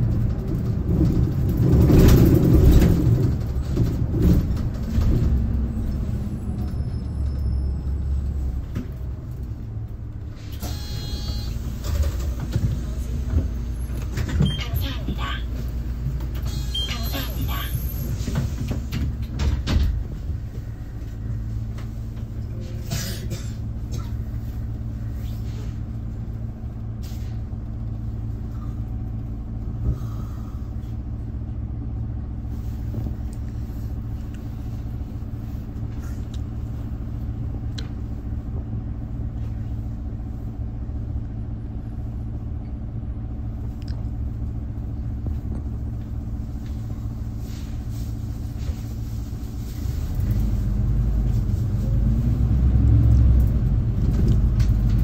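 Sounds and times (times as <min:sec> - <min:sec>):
bus engine idling: 0:00.0 - 0:55.0
knocks and clatters: 0:18.2 - 0:20.2.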